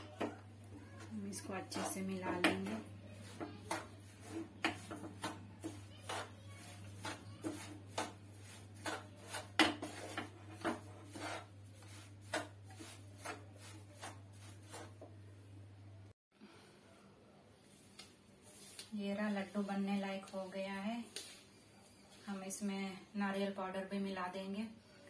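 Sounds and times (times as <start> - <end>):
spatula scraping frying pan: 1.0 - 15.1.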